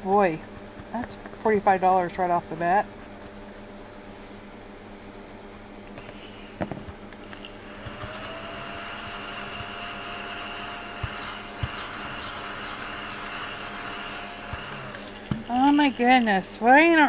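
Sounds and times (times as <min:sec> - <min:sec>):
mini vacuum motor whining: 0:06.0 - 0:17.0.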